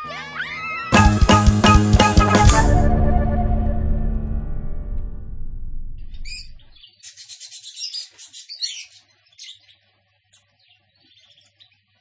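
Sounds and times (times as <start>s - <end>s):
music: 0.0s - 6.0s
small birds chirping: 6.1s - 12.0s.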